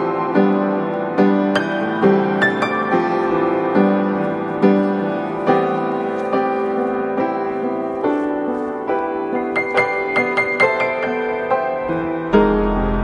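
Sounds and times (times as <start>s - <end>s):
slow calm piano music: 0.0s - 13.0s.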